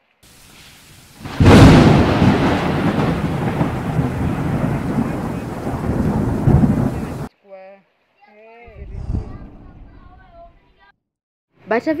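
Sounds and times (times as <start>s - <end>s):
heavy rain: 0.2s - 7.3s
floodwater rushing: 0.3s - 7.3s.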